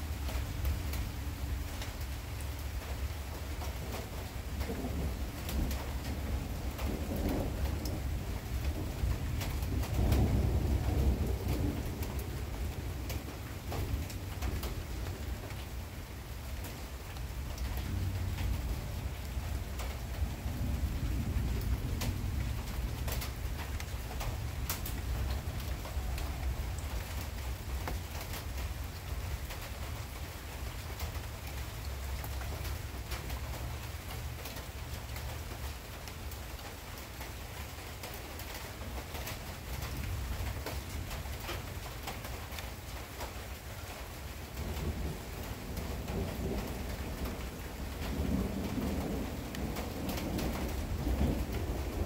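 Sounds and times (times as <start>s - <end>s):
steady rain falling: 0.0s - 52.0s.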